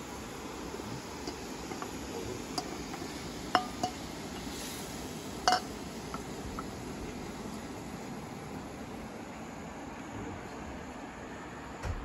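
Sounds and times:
steady hiss: 0.0s - 12.0s
metal pan lid clinking: 3.5s - 4.1s, 5.5s - 5.7s.

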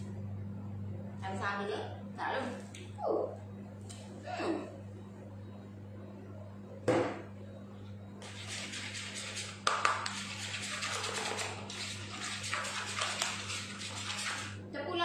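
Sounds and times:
spoon scraping plastic bowl: 8.2s - 14.6s.

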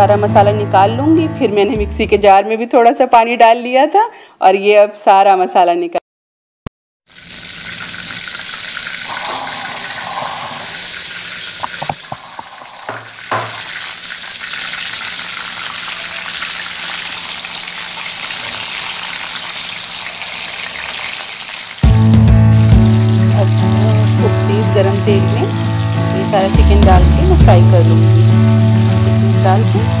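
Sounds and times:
oil sizzling in frying pan: 7.1s - 30.0s.

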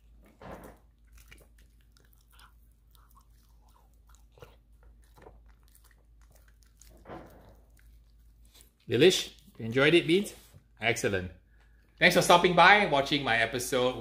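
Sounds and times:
dog chewing and lip smacking: 0.0s - 9.9s.

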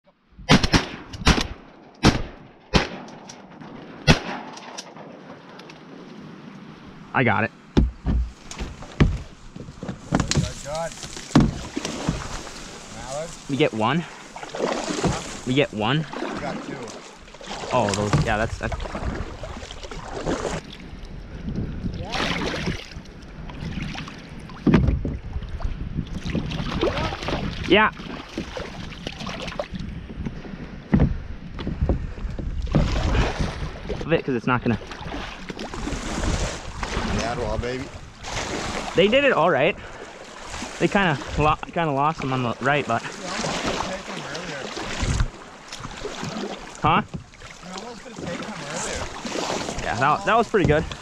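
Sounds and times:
shotgun blasts: 0.5s - 5.2s
thump against kayak hull: 7.7s - 12.6s
wind on microphone: 17.5s - 41.7s, 44.9s - 46.4s.

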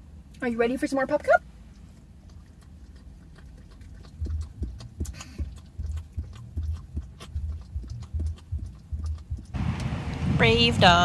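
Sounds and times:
dog licking: 1.6s - 9.6s.

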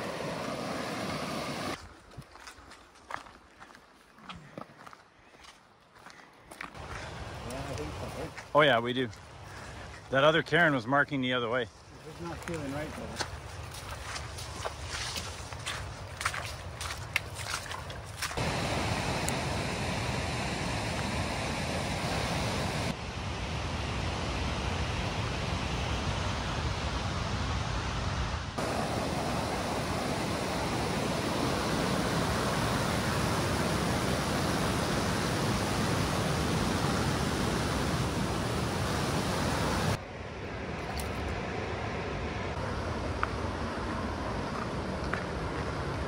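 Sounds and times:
whitewater rapids rushing: 0.0s - 1.8s, 28.6s - 40.0s.

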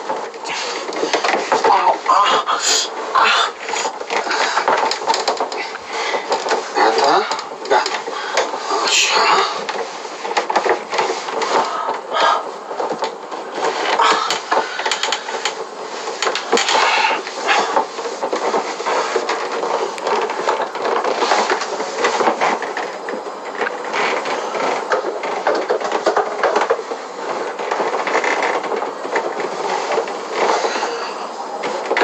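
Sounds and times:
irregular bumps: 0.0s - 32.0s.

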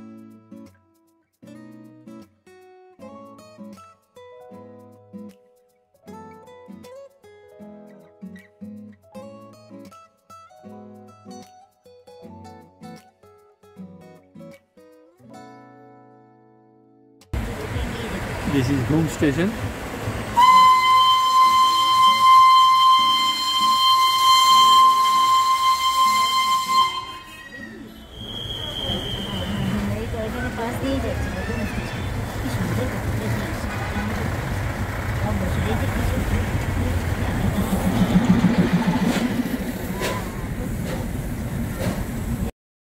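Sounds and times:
engine low rumble: 17.4s - 20.4s, 28.8s - 42.5s
train whistle blast: 20.3s - 30.0s, 39.0s - 40.5s
rapid pulsing hum: 32.2s - 40.8s.

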